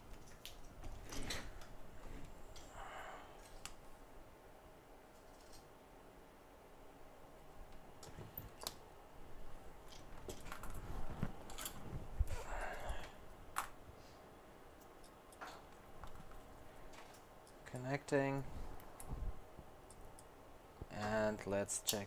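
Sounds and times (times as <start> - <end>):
tools clicking and tapping: 14.8 - 17.9.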